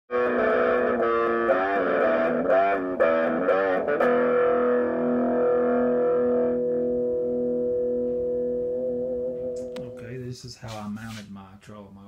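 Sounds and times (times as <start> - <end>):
electric guitar riff: 0.1 - 10.1.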